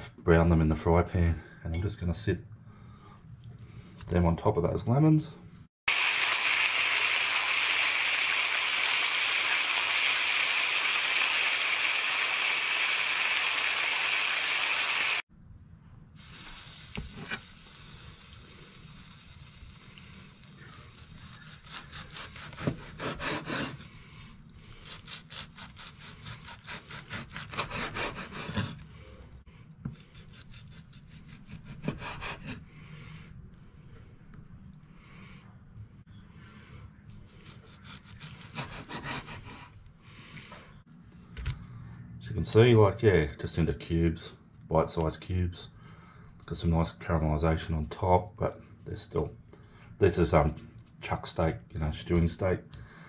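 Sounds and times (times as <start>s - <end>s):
steak sizzling in a frying pan: 5.9s - 15.2s
cleaver cutting on wooden board: 21.3s - 23.9s, 24.8s - 28.8s, 29.8s - 32.7s, 37.4s - 39.8s.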